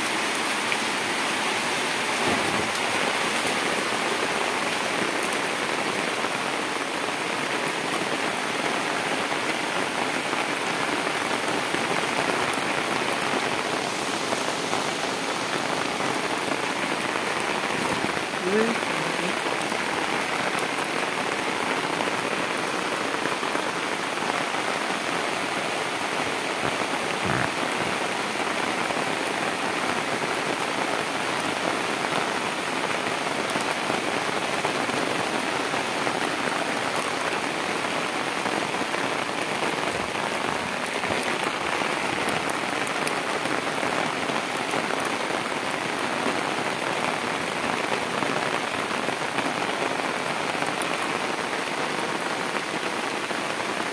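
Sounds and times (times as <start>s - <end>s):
rain on concrete and water: 0.0s - 53.9s.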